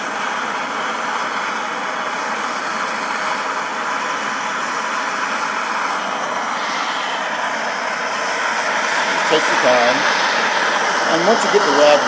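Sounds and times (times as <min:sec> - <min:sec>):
propane torch hissing: 0:00.0 - 0:12.0.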